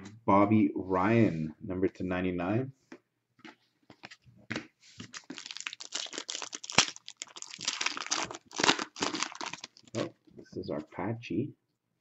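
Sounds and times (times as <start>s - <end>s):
foil wrapper tearing and crinkling: 5.1s - 10.0s.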